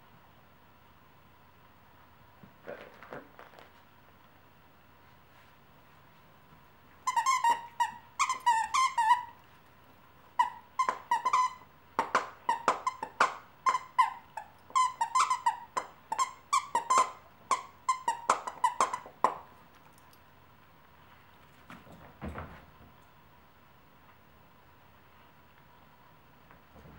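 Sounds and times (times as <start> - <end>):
squeaky toy squeaking: 7.0 - 9.4, 10.4 - 19.4.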